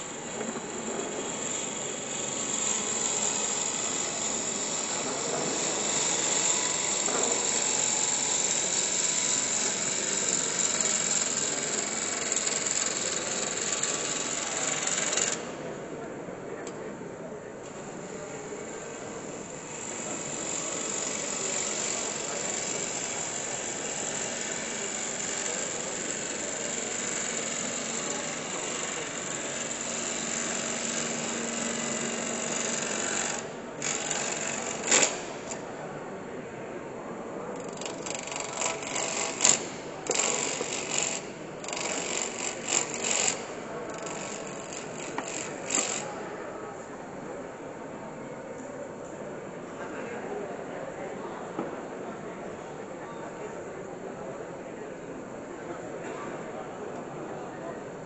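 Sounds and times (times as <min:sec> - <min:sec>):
sharp cutting scrapes and clicks: 0:19.9 - 0:35.6, 0:37.6 - 0:46.1.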